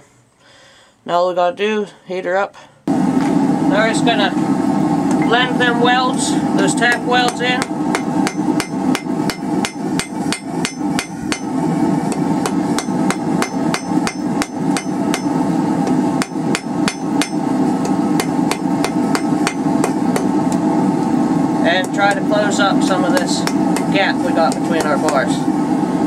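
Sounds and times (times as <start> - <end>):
steady rushing noise: 2.9 - 26.0
hammer striking iron on anvil: 6.9 - 11.5, 12.1 - 15.4, 16.2 - 20.4, 23.0 - 25.3.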